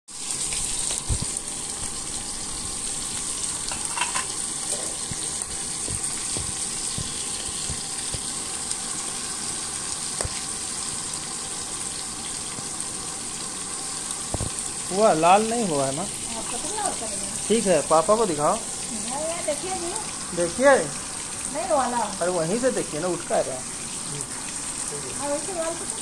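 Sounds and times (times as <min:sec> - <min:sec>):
fish sizzling in hot oil: 0:00.1 - 0:26.0.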